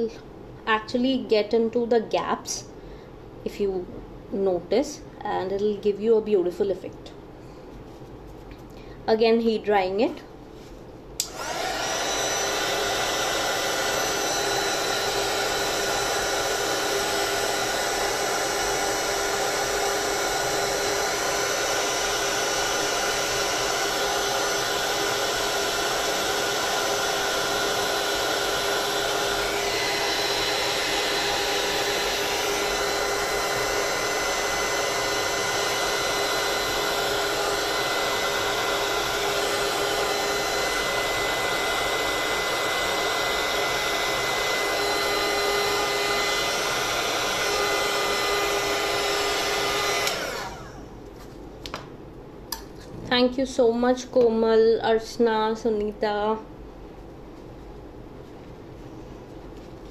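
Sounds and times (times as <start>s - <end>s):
heat gun blowing air: 11.2s - 50.9s.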